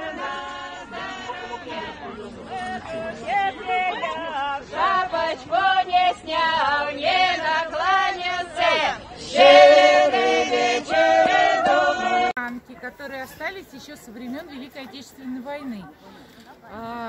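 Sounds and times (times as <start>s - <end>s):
group singing unaccompanied: 0.0s - 12.4s.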